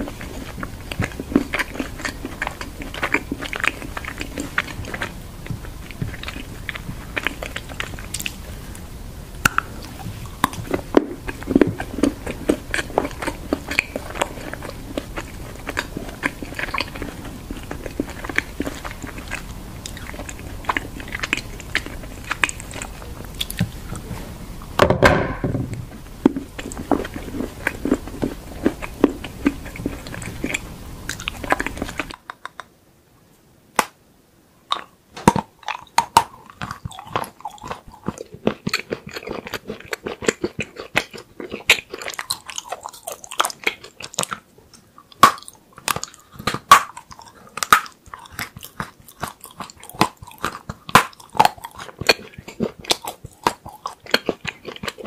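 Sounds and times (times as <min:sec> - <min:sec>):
chocolate crunching and cracking: 0:00.0 - 0:24.0, 0:26.2 - 0:32.7, 0:34.7 - 0:55.0
chocolate sharp snaps: 0:33.7 - 0:34.0, 0:45.2 - 0:49.4.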